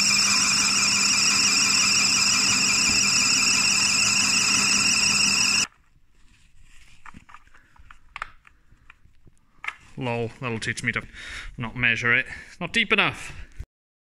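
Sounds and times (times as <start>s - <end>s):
high-pitched lathe cutting squeal: 0.0s - 5.7s.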